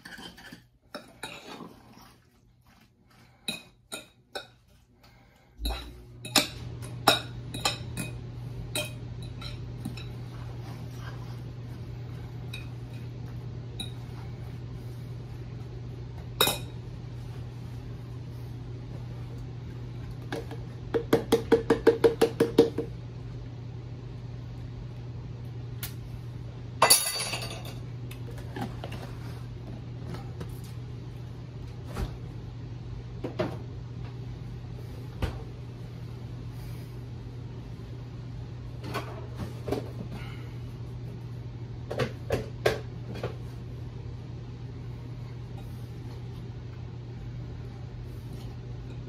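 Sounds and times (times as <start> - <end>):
spoon mixing in a bowl: 0.0 - 4.9, 5.6 - 15.3
steady low hum: 0.0 - 49.0.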